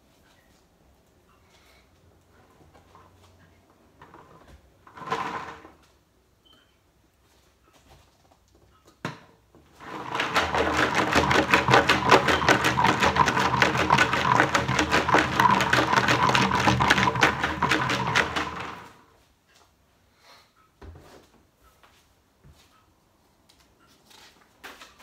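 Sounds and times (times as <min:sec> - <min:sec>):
paper slips rattling in plastic jug: 0:09.8 - 0:19.0.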